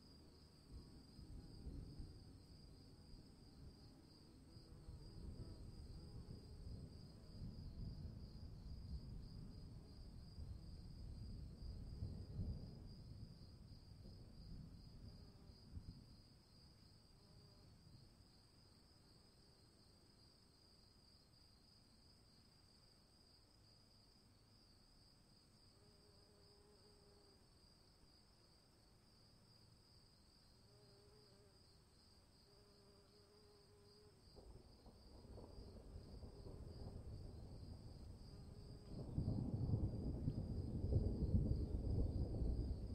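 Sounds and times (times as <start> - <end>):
crickets chirring: 0.0 - 42.9
distant thunder rumbling: 35.0 - 42.9.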